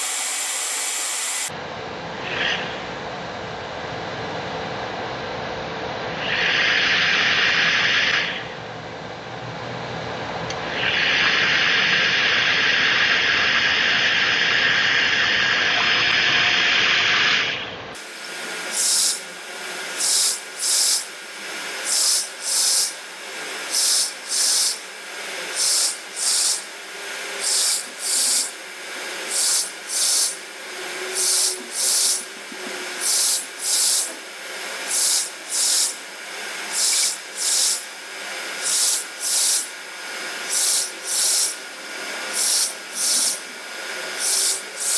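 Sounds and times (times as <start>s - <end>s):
printer steady hiss: 0.0s - 1.5s, 18.0s - 44.9s
short hissing motor bursts: 0.0s - 1.5s, 10.6s - 44.9s.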